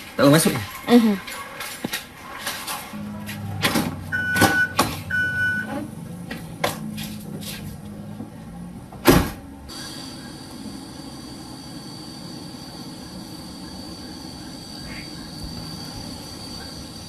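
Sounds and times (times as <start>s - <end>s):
low steady hum: 2.9s - 17.0s
short beeps: 3.0s - 5.7s
car door slamming: 9.0s - 9.4s.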